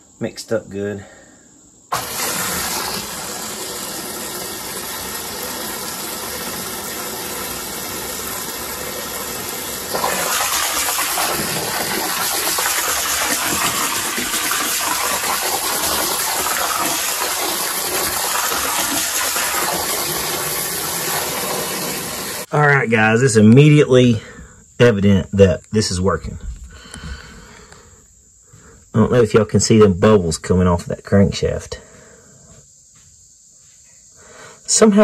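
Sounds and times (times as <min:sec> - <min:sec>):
hose spraying into water: 0:01.9 - 0:22.5.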